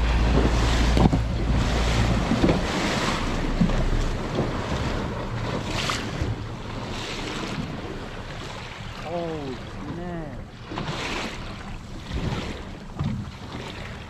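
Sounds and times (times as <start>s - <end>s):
low rumble: 0.0s - 7.0s
water washing against boat hull: 0.0s - 14.0s.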